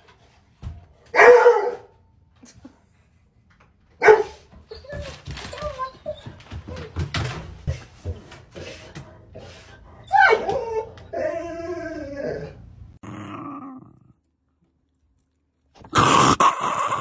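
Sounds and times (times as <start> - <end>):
dog whining: 4.7 - 7.0, 10.0 - 12.7
dog grumbling vocal call: 13.0 - 14.2, 15.8 - 17.0.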